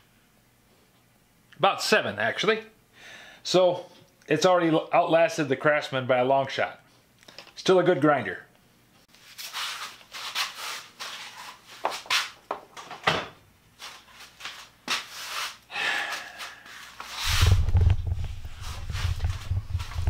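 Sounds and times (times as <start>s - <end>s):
rubbing and scraping handling noise: 9.1s - 12.6s, 13.7s - 15.6s, 16.4s - 20.0s
low rumble: 17.2s - 20.0s.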